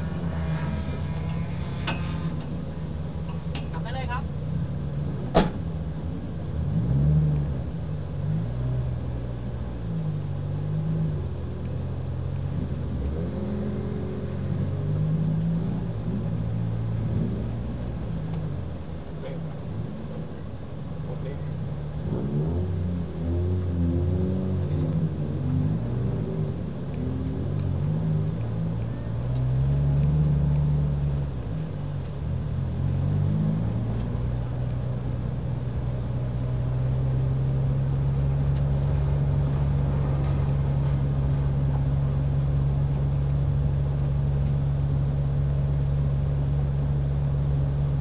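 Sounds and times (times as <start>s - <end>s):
car engine from inside cabin: 0.0s - 48.0s.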